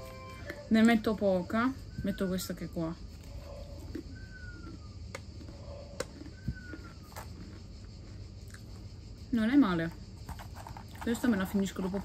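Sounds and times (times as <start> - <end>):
person chewing crunchy biscuit: 3.1 - 9.2.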